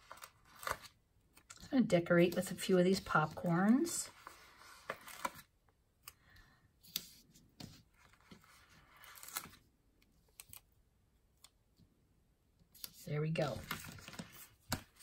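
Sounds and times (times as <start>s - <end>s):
paper rustling: 0.0s - 1.6s, 2.2s - 5.5s, 6.9s - 9.6s, 12.8s - 15.0s.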